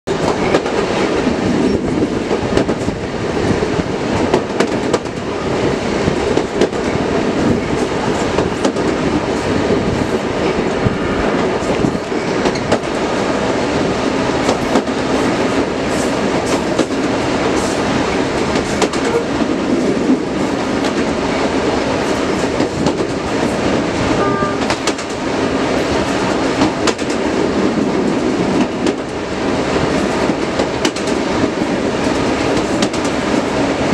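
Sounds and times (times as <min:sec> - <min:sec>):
diesel locomotive rumble: 0:00.1 - 0:33.9
wheels clicking over rail joints: 0:29.8 - 0:33.9.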